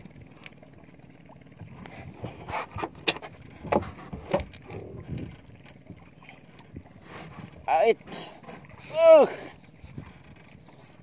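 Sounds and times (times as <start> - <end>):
knocks and splashes: 0.0 - 11.0
water lapping against boat: 0.0 - 11.0.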